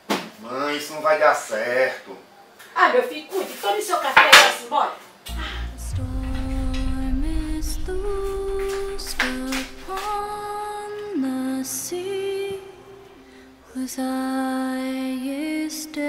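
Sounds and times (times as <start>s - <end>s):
woman singing wordless melody: 5.3s - 16.0s.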